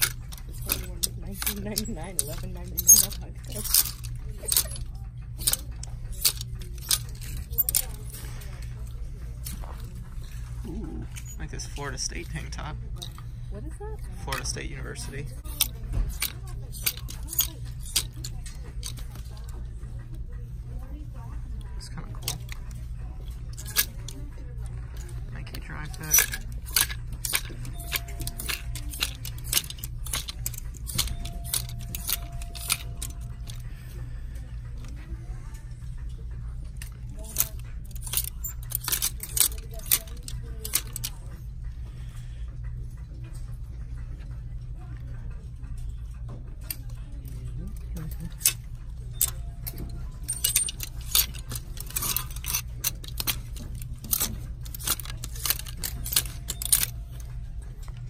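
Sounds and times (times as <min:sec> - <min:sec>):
plastic hangers clacking on rack: 0:00.0 - 0:08.6, 0:14.2 - 0:19.7, 0:22.2 - 0:33.7, 0:36.8 - 0:41.3, 0:46.6 - 0:58.0
steady low hum: 0:00.0 - 0:58.0.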